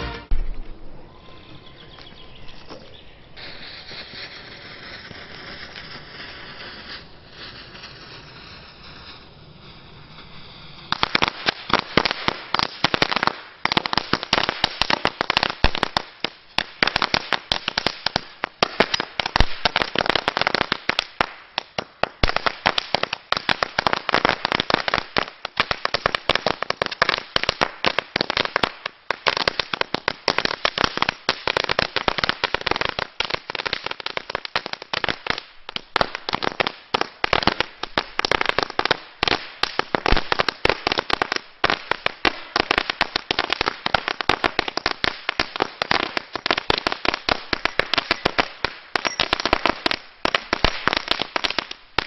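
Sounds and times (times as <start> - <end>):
firecracker chain banging: 49.0 - 49.4.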